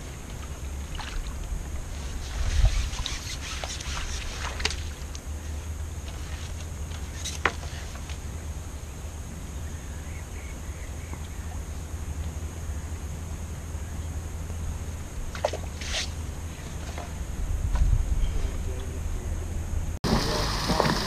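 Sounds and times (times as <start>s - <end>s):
steady low rumble: 4.4s - 21.0s.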